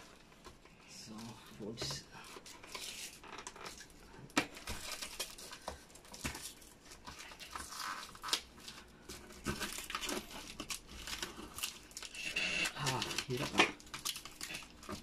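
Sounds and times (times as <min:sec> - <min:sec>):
packing tape peeling off cardboard: 0:07.4 - 0:15.0.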